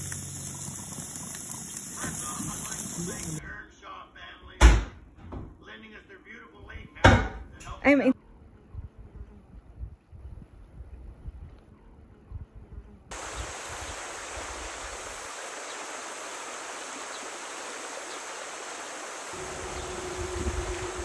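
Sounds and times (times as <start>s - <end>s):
faint low wind rumble: 6.6s - 15.3s, 19.4s - 21.0s
river water rushing: 13.1s - 21.0s
faint steady hum: 19.4s - 21.0s.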